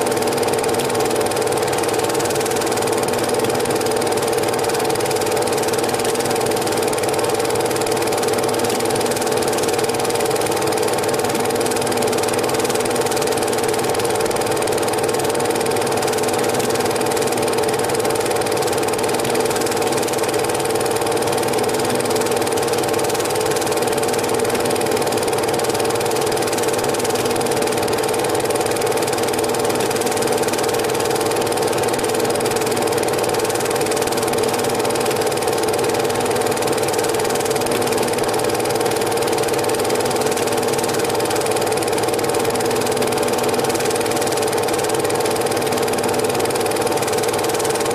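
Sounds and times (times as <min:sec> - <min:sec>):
film projector whirring: 0:00.0 - 0:47.9.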